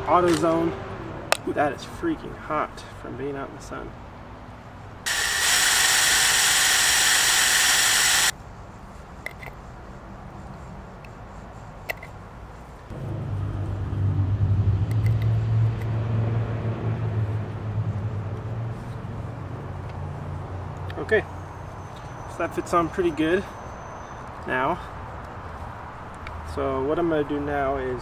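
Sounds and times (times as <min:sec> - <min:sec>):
cordless drill whirring: 0:05.1 - 0:08.4
steady low rumble: 0:12.9 - 0:19.9.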